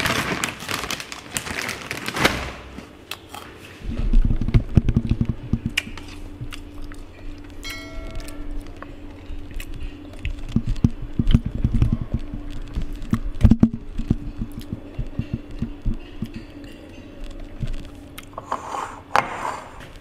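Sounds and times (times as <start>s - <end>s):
steady low hum: 2.5s - 20.0s.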